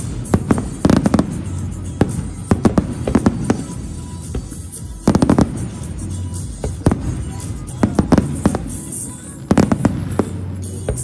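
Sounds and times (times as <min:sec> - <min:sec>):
fireworks bangs: 0:00.0 - 0:11.0
music playing: 0:00.0 - 0:11.0.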